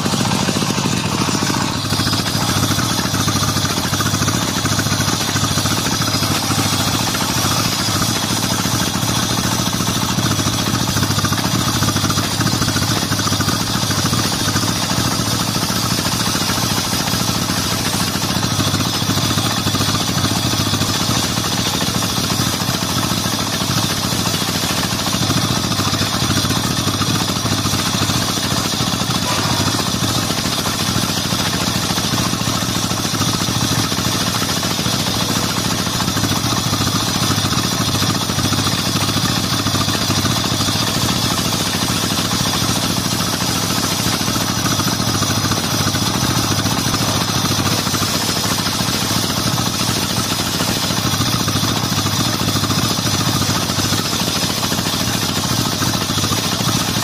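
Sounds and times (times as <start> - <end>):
table saw cutting wood: 29.1 - 30.4.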